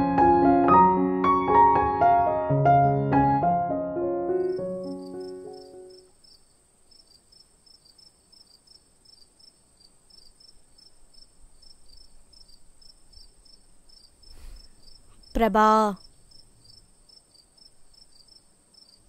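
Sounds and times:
piano music: 0.0s - 6.1s
crickets chirping: 4.4s - 19.0s.

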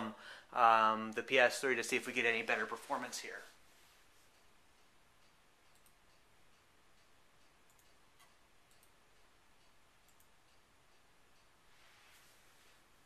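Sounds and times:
computer mouse clicks: 5.2s - 10.6s.

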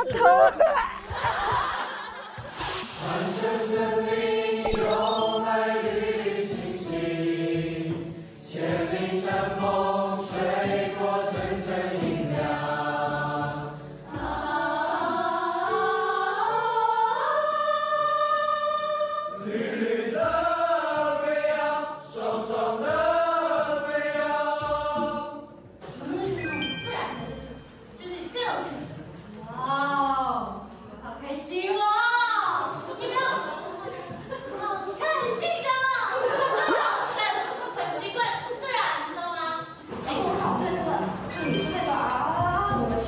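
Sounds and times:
choir-like voices singing: 1.4s - 25.6s.

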